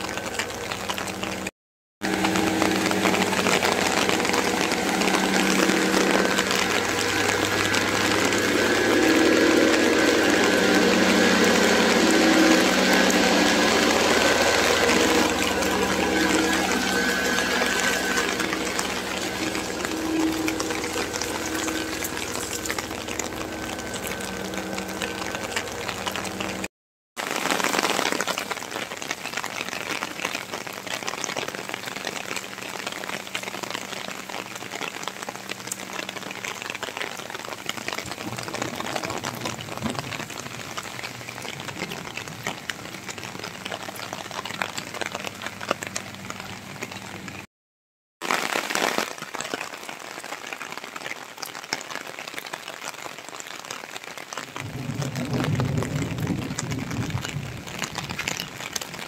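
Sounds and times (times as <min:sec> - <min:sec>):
rain on paving and foliage: 0:00.0 - 0:47.5, 0:48.2 - 0:59.0
faint steady hum: 0:02.1 - 0:26.7.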